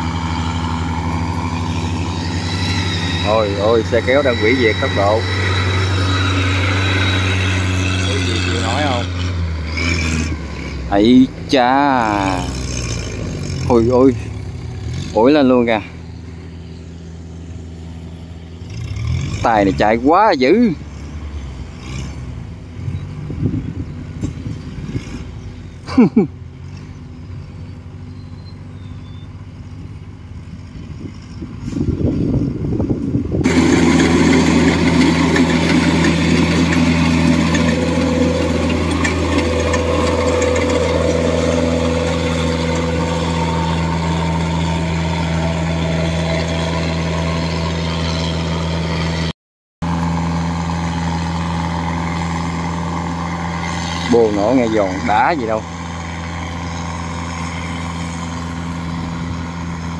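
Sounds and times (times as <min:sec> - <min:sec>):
loud diesel engine running: 0:00.0 - 0:20.9, 0:33.0 - 0:59.9
quiet engine: 0:00.0 - 0:49.2, 0:49.8 - 0:59.9.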